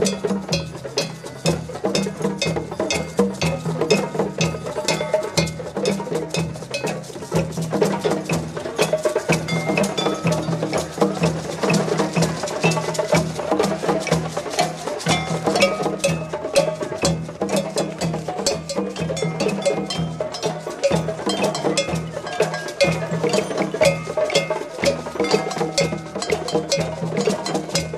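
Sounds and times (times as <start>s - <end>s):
hand drums playing together: 0.0s - 27.9s.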